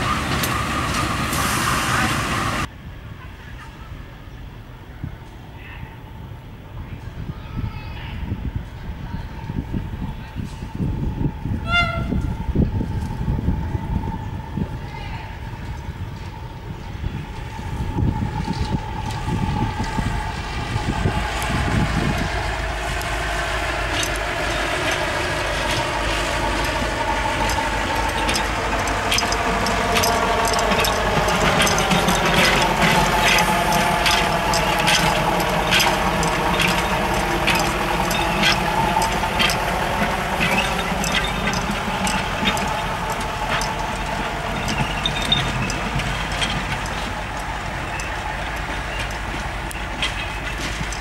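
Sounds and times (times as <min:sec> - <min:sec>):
shunting locomotive engine running: 0:00.0 - 0:02.7, 0:06.0 - 0:51.0
sharp clicks: 0:23.9 - 0:51.0.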